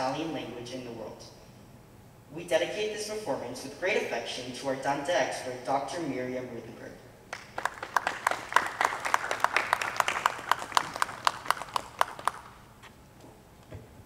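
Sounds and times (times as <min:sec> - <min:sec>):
small audience applause: 0:07.3 - 0:12.6.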